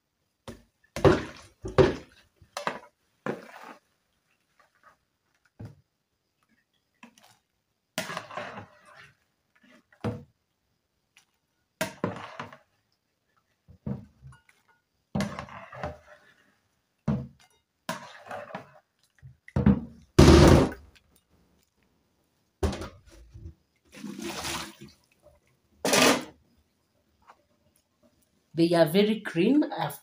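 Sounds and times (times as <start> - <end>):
metal spoon scraping plastic bowl: 25.8 - 26.4.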